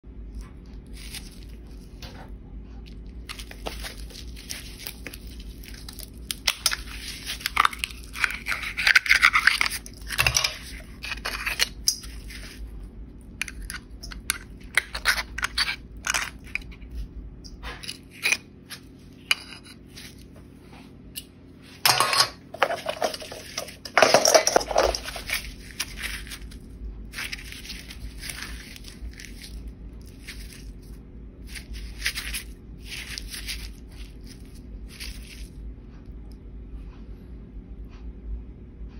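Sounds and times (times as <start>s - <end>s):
knife scraping oyster shell: 3.3s - 12.6s, 13.4s - 16.7s, 17.8s - 20.2s, 21.9s - 26.6s, 27.2s - 30.7s.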